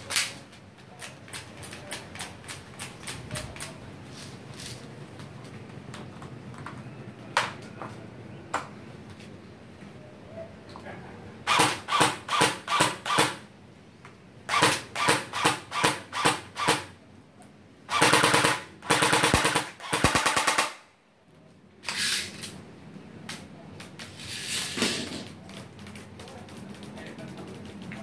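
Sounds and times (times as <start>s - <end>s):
airsoft gun firing: 11.5s - 13.5s, 14.5s - 16.9s, 17.9s - 20.9s.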